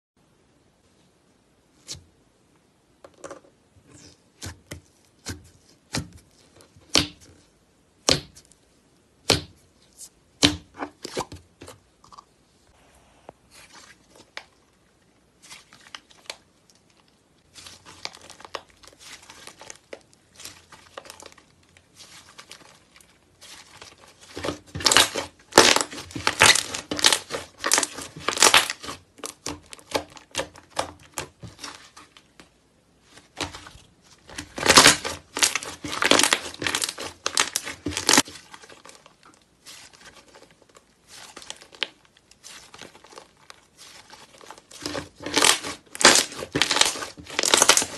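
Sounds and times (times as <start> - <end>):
slime crackling and popping: 15.4 - 32.1, 34.2 - 47.9.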